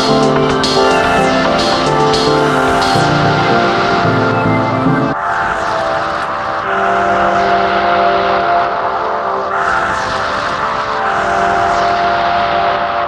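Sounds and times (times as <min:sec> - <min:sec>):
electronic house music: 0:00.0 - 0:13.0.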